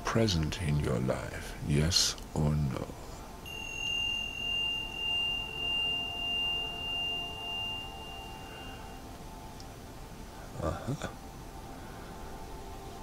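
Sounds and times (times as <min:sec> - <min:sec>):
low pulsing hum: 0:00.0 - 0:13.0
high pure steady tone: 0:02.7 - 0:13.0.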